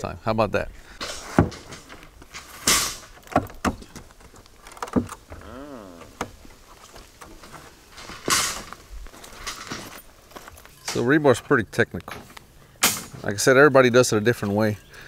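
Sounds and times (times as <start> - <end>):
sharp clicks and knocks: 1.0 - 5.4.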